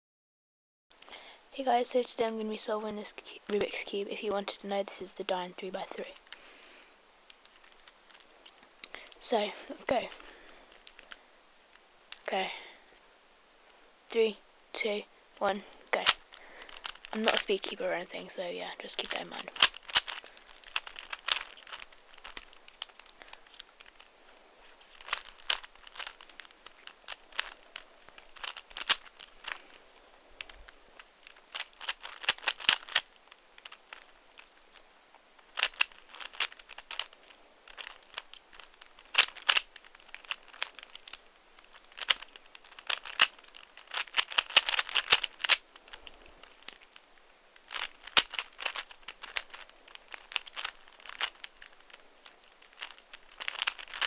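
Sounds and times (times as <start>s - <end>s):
plastic puzzle cube clicking: 7.3s - 12.3s, 15.4s - 18.3s, 18.9s - 24.1s, 24.9s - 29.8s, 30.4s - 34.8s, 35.4s - 54.0s.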